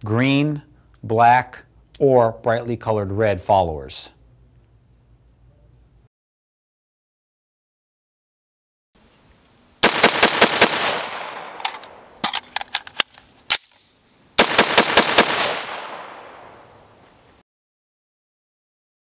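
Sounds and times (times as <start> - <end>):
rifle shots with echo: 9.8 - 12.2, 14.4 - 16.8
metallic rifle clicks: 9.9 - 14.0.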